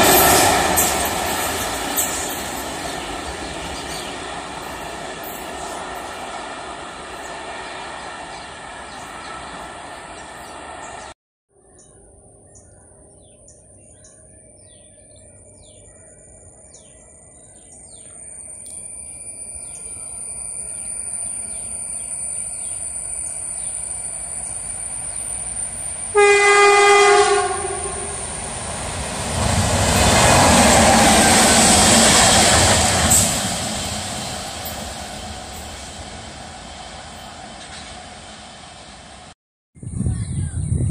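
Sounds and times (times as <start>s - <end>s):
wheel and rail noise: 0.0s - 11.1s, 18.1s - 39.4s
train horn: 26.1s - 28.4s.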